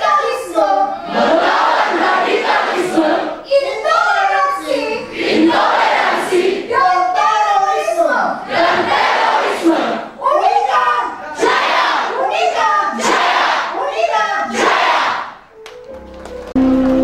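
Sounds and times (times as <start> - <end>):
crowd chanting in unison: 0.9 - 3.4, 5.0 - 6.7, 8.4 - 10.2, 11.2 - 12.2, 12.9 - 13.8, 14.4 - 15.4.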